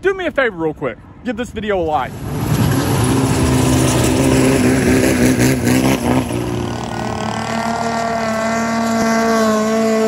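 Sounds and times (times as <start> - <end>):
boat engine revving: 2.1 - 10.0.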